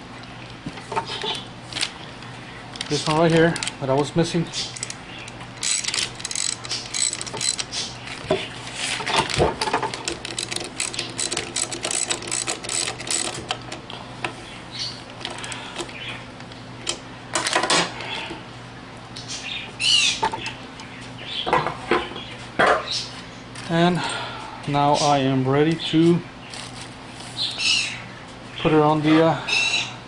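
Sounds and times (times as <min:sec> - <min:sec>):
ratchet wrench clicking: 0:04.6 - 0:05.0, 0:05.6 - 0:07.7, 0:09.9 - 0:13.7.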